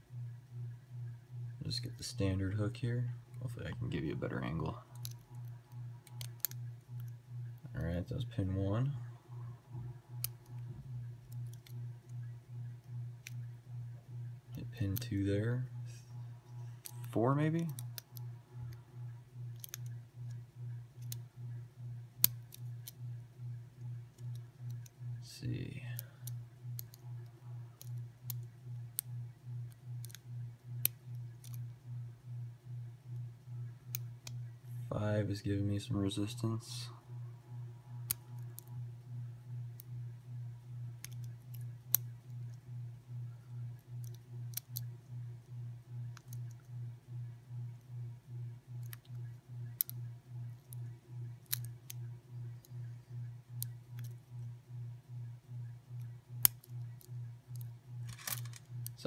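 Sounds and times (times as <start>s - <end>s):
low pulsing hum: 0.0s - 59.0s
lock picking metallic clicks: 19.5s - 20.0s, 30.8s - 31.6s, 50.7s - 52.1s, 56.0s - 59.0s.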